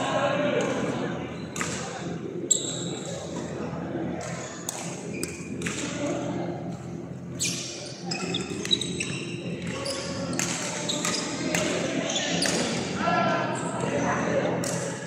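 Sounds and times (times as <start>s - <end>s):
racket hitting shuttlecock: 4.2s - 5.9s
shoe squeaks on court floor: 7.4s - 12.7s.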